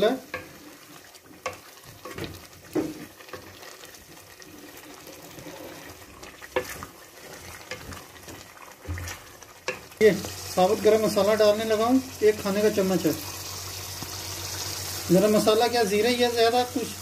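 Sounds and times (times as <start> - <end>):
wooden spoon stirring: 0.0 - 13.1
masala sizzling in a pot: 0.0 - 17.0.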